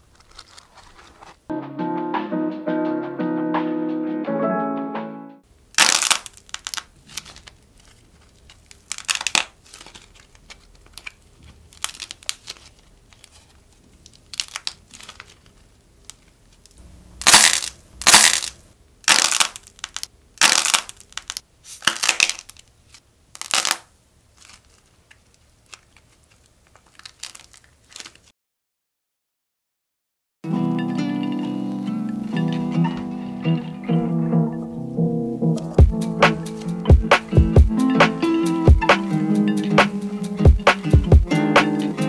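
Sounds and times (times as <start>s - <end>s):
clay crackling crunches: 5.8s - 28.3s.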